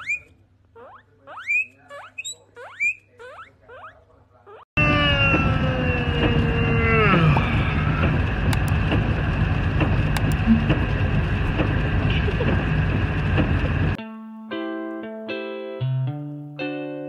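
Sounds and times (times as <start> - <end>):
vehicle engine and road noise: 4.8 - 14.0.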